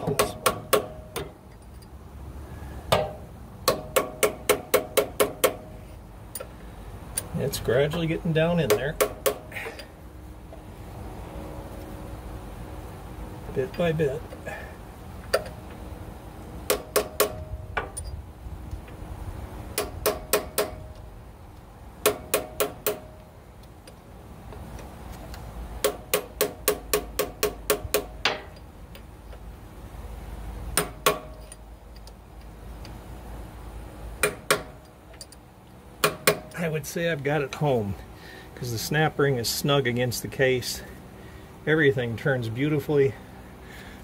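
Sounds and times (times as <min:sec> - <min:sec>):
hammer tapping on metal punch: 0:00.0 - 0:01.4, 0:02.9 - 0:05.7, 0:08.6 - 0:09.8, 0:16.7 - 0:18.1, 0:19.8 - 0:21.0, 0:22.0 - 0:23.2, 0:25.8 - 0:29.1, 0:30.7 - 0:31.6, 0:34.2 - 0:35.4, 0:36.0 - 0:36.6.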